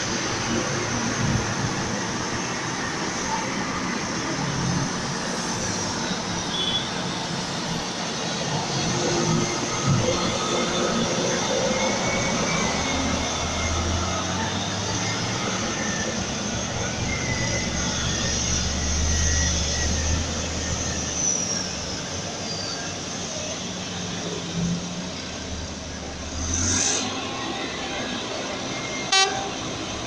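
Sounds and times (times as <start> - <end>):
diesel machinery drone: 0.0 - 30.0.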